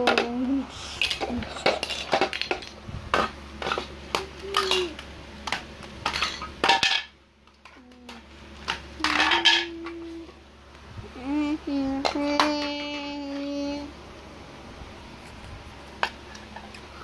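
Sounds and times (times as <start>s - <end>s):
plastic bricks clacking together: 1.0s - 10.0s.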